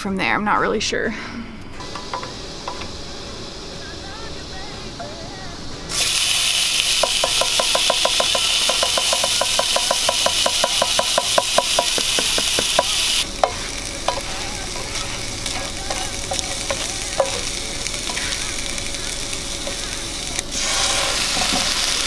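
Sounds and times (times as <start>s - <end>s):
chicken sizzling in skillet: 5.9s - 22.0s
fast regular ticking: 6.4s - 20.5s
spatula scraping and stirring: 6.9s - 21.9s.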